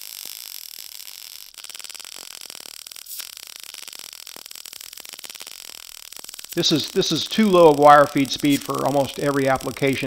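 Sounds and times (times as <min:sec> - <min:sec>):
welding arc crackling: 0:00.0 - 0:10.0.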